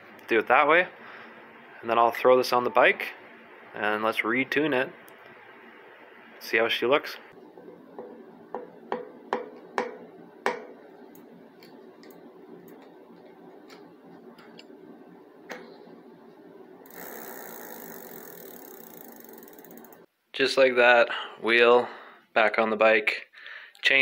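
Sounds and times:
bicycle freehub ticking: 16.8 - 20.1.

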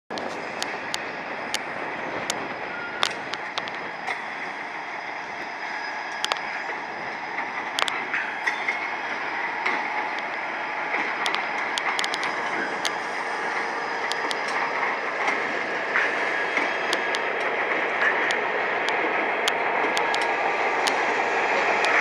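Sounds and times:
locomotives rolling past: 0.1 - 22.0
wheels clicking on rails: 0.1 - 22.0
faint wheel squeals: 2.6 - 7.2.

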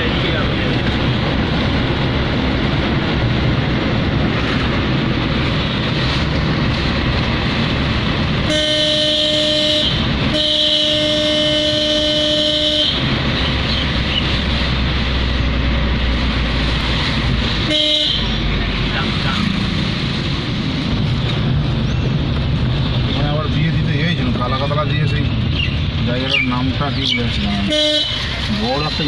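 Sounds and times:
car road and engine noise: 0.0 - 29.0
vehicle horn blasts: 8.4 - 13.1, 17.7 - 18.4, 27.6 - 28.3.

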